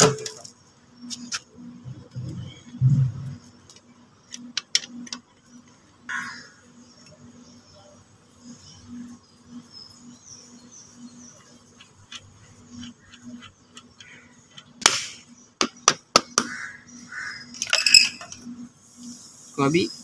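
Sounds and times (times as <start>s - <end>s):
metal tools clicking and knocking: 17.6s - 18.4s.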